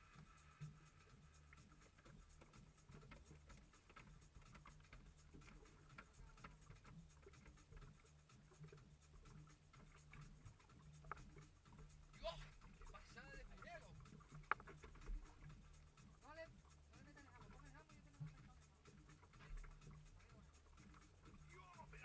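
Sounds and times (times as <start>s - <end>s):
fishing reels ticking: 0.0s - 22.0s
low steady hum: 0.0s - 22.0s.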